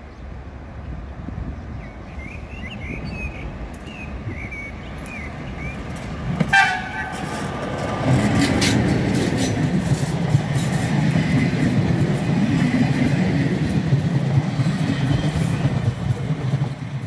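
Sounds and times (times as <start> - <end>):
birds chirping: 0.0 - 8.2, 11.0 - 17.0
locomotive rumbling: 0.3 - 17.0
locomotive horn toot: 6.4 - 7.4.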